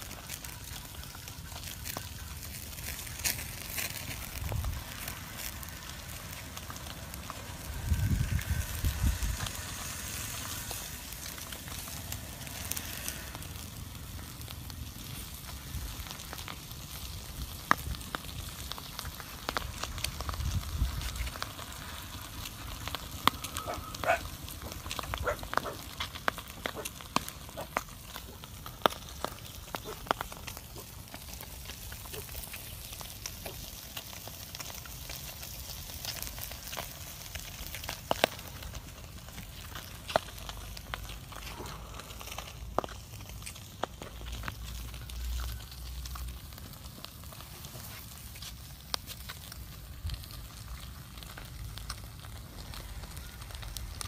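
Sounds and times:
fire snaps and pops: 0.0 - 54.0
wood fire crackling: 0.0 - 54.0
low rumbles: 3.0 - 32.0.

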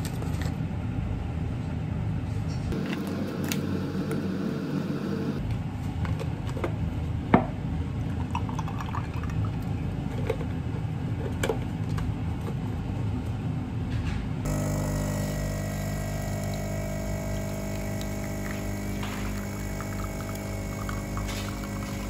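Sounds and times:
steady low hum: 0.6 - 8.6, 9.2 - 22.0
espresso machine pump humming: 14.5 - 22.0
milk pouring over ice: 16.2 - 22.0.

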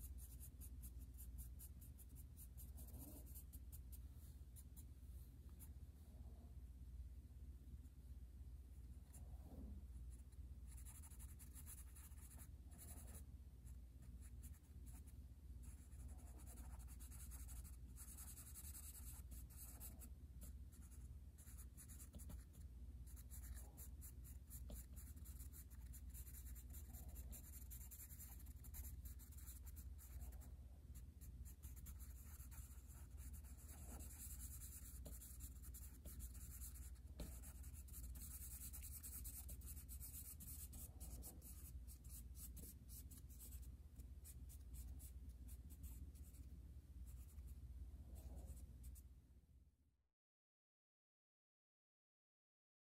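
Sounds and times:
pencil scratching on paper: 0.0 - 4.0, 10.7 - 13.3, 14.2 - 30.5, 31.2 - 46.5
steady low hum: 0.0 - 49.6.

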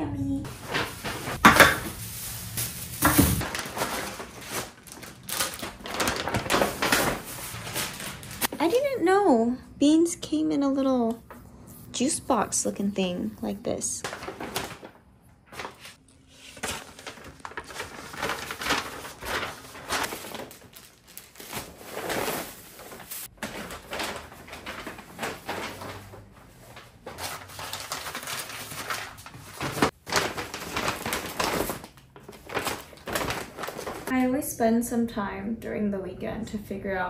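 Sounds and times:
bags rustling and crinkling: 0.4 - 8.6, 14.0 - 34.1
items set down: 2.9 - 3.4.

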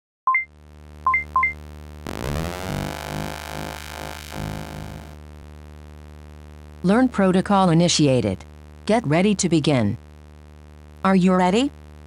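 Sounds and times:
full synth tone: 2.1 - 5.2
low synth drone: 2.1 - 5.2.

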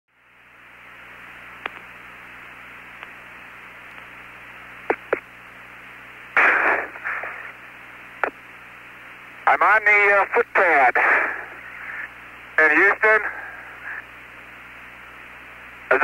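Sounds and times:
radio static hiss: 0.1 - 16.0
sharp radio clicks: 1.6 - 2.0, 2.9 - 3.2, 4.8 - 5.4, 6.4 - 7.6, 8.2 - 8.4.

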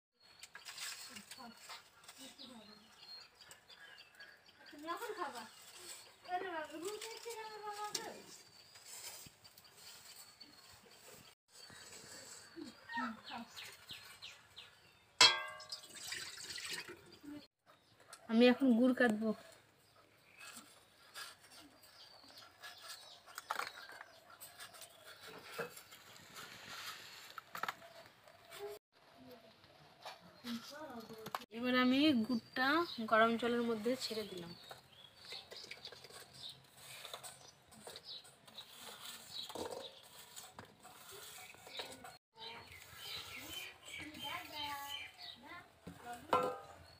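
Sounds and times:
clinks of pieces on steel plate: 15.2 - 16.0.

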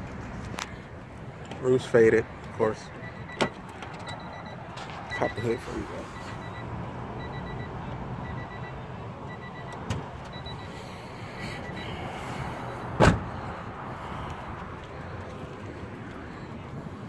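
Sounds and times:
warning chime beeping: 2.9 - 10.8
loud thump: 13.0 - 13.3.

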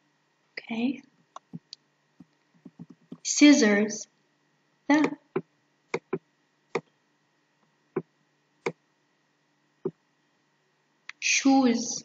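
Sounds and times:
computer mouse clicking: 1.3 - 3.3, 5.0 - 6.2.

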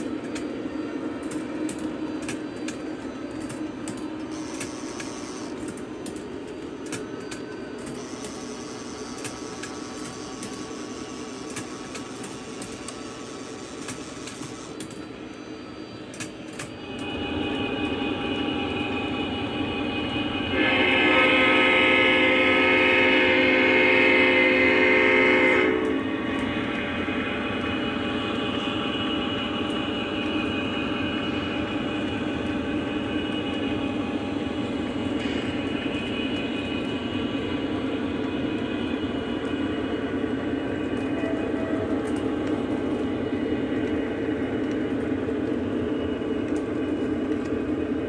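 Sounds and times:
model train rolling on track: 0.0 - 48.0
wheel clicks at rail joints: 1.2 - 15.1
multi-note train horn: 17.0 - 27.4, 41.0 - 42.2.

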